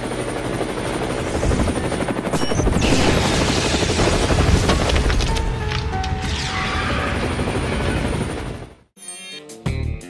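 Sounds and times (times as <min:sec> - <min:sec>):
helicopter rotor chop: 0:00.0 - 0:05.4, 0:06.8 - 0:08.8.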